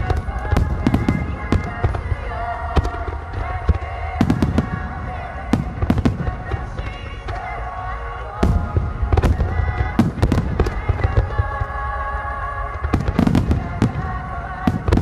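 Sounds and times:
fireworks bangs: 0:00.0 - 0:15.0
music with sustained tones: 0:00.0 - 0:15.0.

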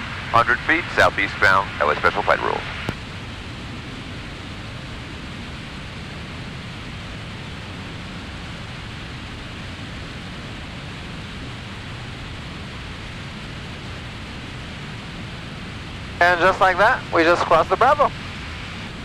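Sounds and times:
light aircraft engine drone: 0:00.0 - 0:19.0.

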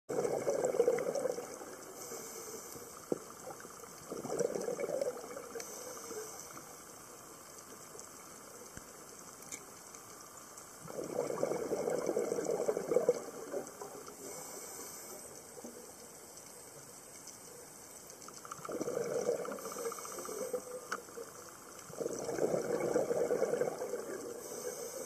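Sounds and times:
underwater breath bubbles: 0:00.1 - 0:06.8, 0:10.8 - 0:15.4, 0:18.5 - 0:20.9, 0:21.9 - 0:25.0
faint hiss: 0:00.1 - 0:25.0.

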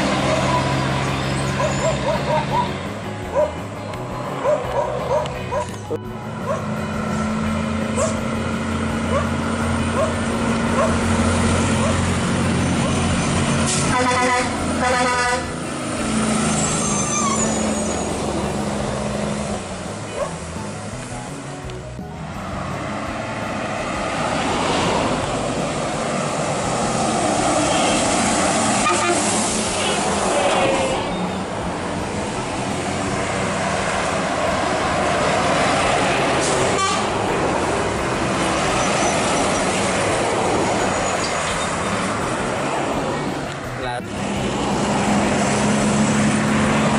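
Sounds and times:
diesel truck engine driving past: 0:00.0 - 0:46.9
tyre and road noise: 0:00.0 - 0:46.9
truck air horn blast: 0:13.5 - 0:15.6, 0:27.5 - 0:31.2, 0:36.4 - 0:37.2.

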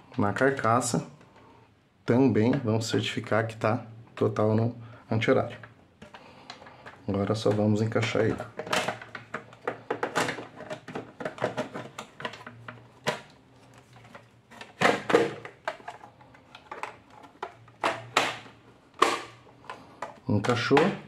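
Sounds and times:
plastic latches snapping: 0:14.1 - 0:21.0.

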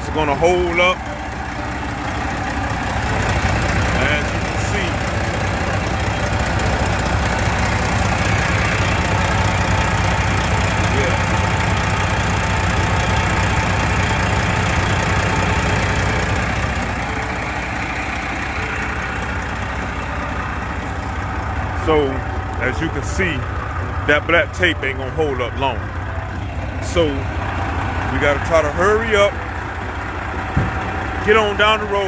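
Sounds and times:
diesel engine idling: 0:00.0 - 0:32.0.

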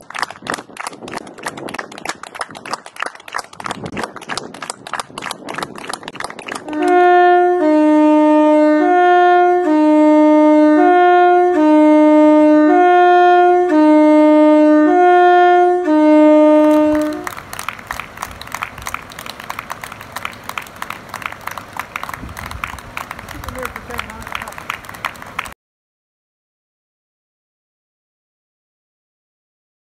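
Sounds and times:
hand clapping: 0:00.0 - 0:07.0, 0:16.6 - 0:25.6
two-tone train horns: 0:06.6 - 0:17.4.

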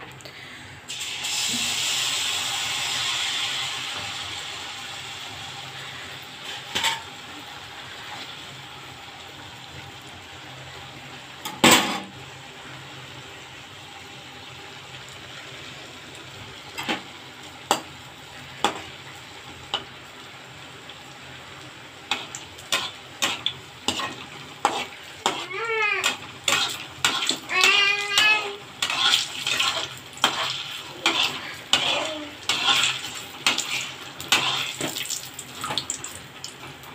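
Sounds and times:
hot oil sizzling: 0:00.4 - 0:36.9.

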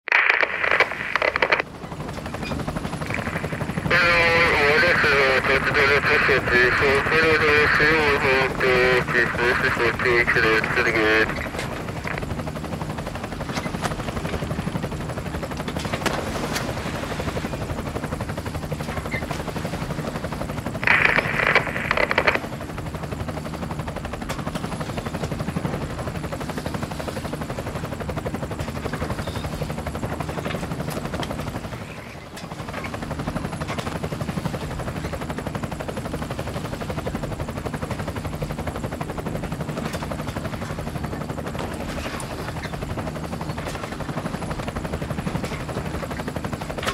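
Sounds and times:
motor humming: 0:02.2 - 0:04.4.

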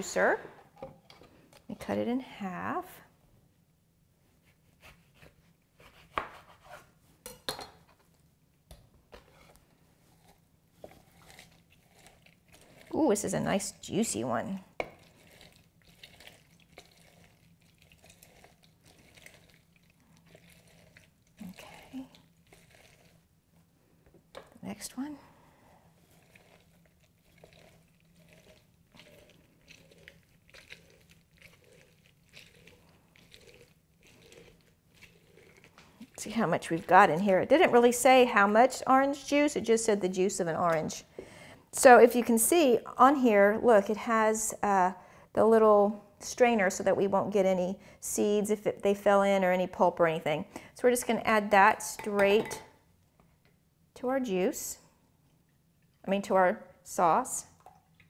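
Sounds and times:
wet squishing of orange pulp: 0:10.1 - 0:23.4, 0:25.8 - 0:38.2.

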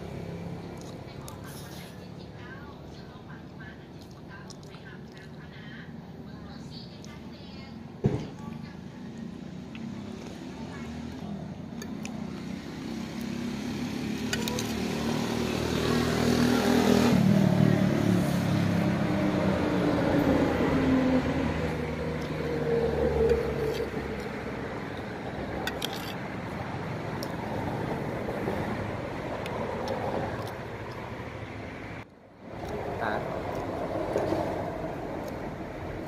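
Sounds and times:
vehicle engine passing by: 0:09.3 - 0:36.0.

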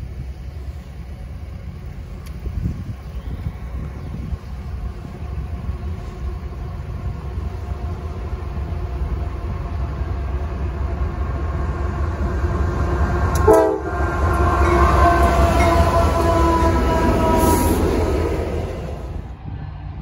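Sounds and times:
freight train rumble: 0:00.0 - 0:20.0
locomotive air horn chord: 0:13.3 - 0:19.2.

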